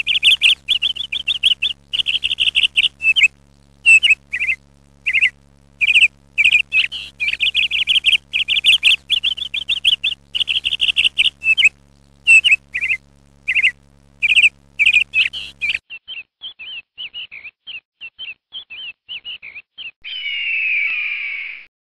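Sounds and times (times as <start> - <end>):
low hum: 0.0 - 15.8
small bird chirping: 0.0 - 20.4
falling whistle-like bird call: 20.0 - 21.7.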